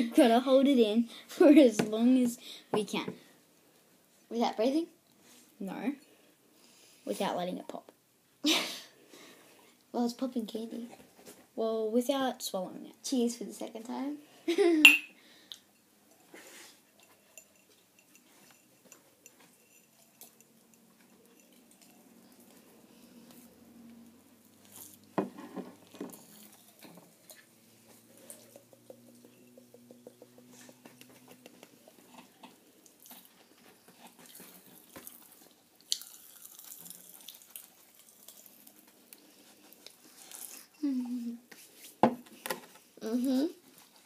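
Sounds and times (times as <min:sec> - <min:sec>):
popping candy crackling: 0:34.3 - 0:39.0.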